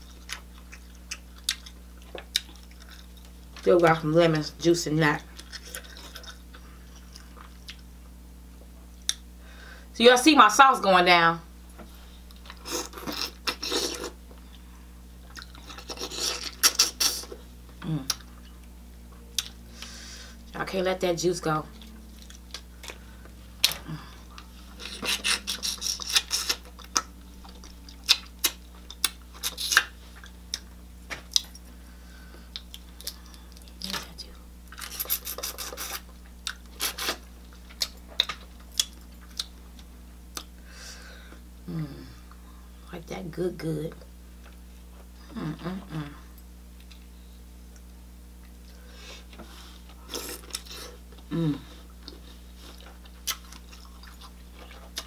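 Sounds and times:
short low hum: 11.4s - 55.0s
wet lip smacking and sucking: 24.8s - 27.0s, 34.8s - 37.2s.

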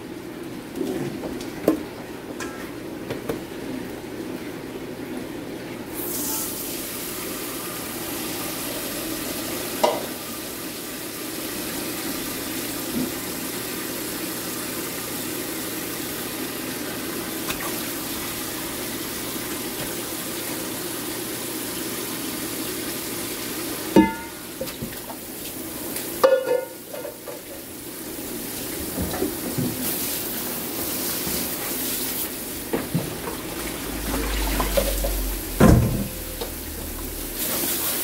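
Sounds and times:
tap water filling a bowl: 9.2s - 10.2s, 17.0s - 21.9s, 32.7s - 35.4s
water poured from saucepan: 33.4s - 35.6s.

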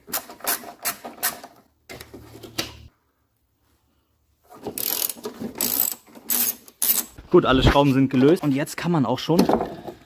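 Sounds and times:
ratchet wrench clicking: 4.8s - 7.2s.

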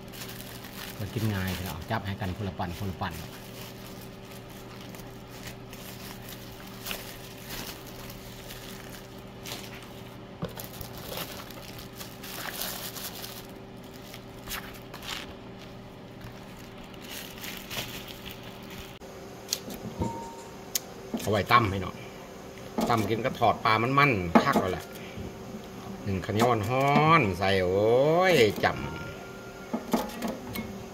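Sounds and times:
plastic bags crinkling: 0.0s - 19.0s
low hum: 0.0s - 30.9s.

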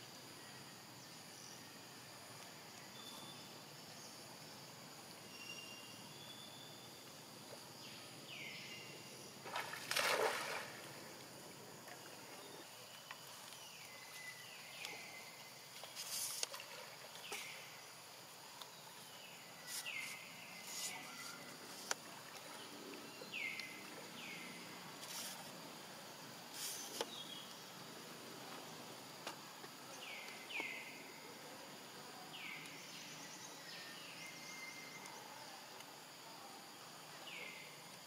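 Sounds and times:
water splashing and sloshing: 9.4s - 13.6s, 15.7s - 17.7s, 21.6s - 24.2s.

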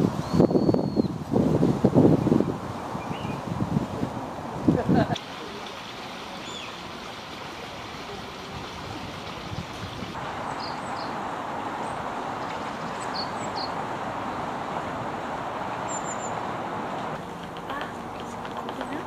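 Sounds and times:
rushing outdoor background noise: 0.0s - 19.0s
faint high bird chirps: 0.2s - 1.1s.

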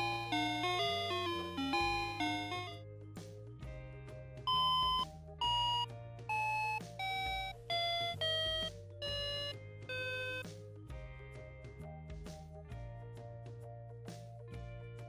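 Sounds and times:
toy beeping tones: 0.0s - 2.8s, 4.5s - 10.5s.

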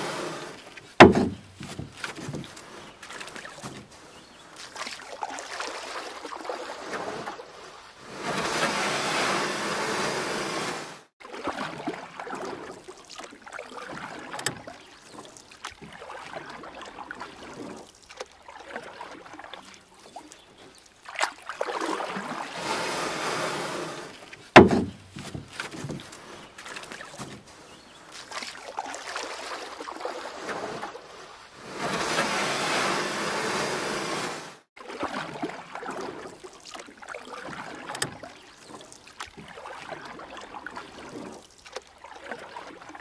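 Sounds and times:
paddle splashing through water: 0.0s - 43.0s
sharp knock: 1.0s - 1.5s, 24.6s - 25.1s.

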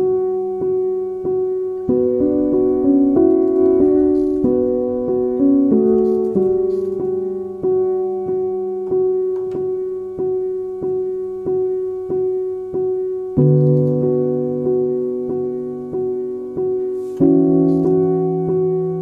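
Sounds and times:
piano chord repeating: 0.0s - 19.0s
low piano bass note: 2.0s - 9.2s.

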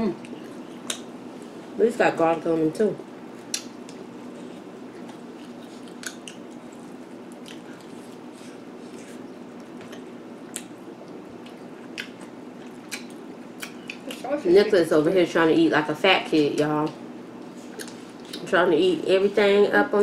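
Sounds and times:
low room hum: 0.0s - 20.0s
people chewing food: 0.1s - 1.6s, 3.3s - 14.3s, 16.4s - 18.5s.

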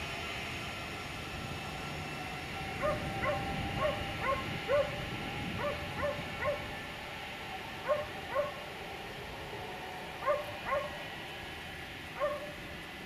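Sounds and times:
dog barking: 2.8s - 5.0s, 5.6s - 6.7s, 7.8s - 8.6s, 10.2s - 11.0s, 12.2s - 12.6s.

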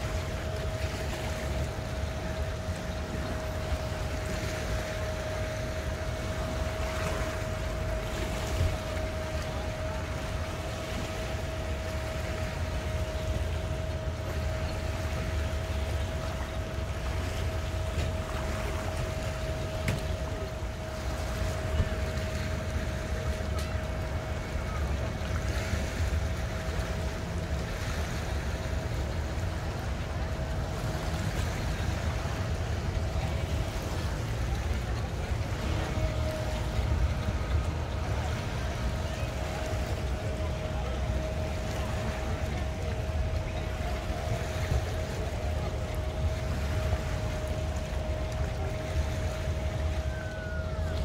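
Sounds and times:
boat engines rumbling: 0.0s - 51.0s
faint steady whine: 0.0s - 51.0s.

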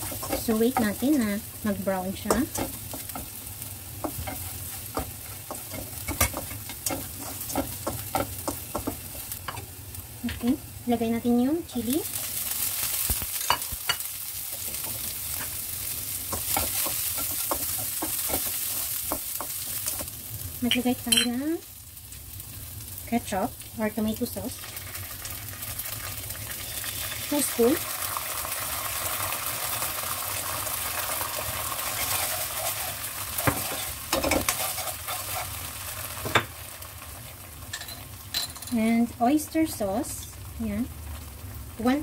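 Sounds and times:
food sizzling in hot oil: 0.0s - 42.0s
spatula scraping a pan: 4.0s - 9.3s, 31.6s - 35.7s.

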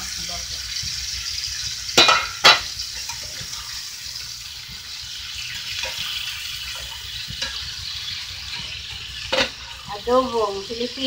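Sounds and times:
meat sizzling in a skillet: 0.0s - 11.0s
metal pot lid clanking: 2.0s - 3.6s, 5.8s - 7.7s, 8.5s - 9.8s.

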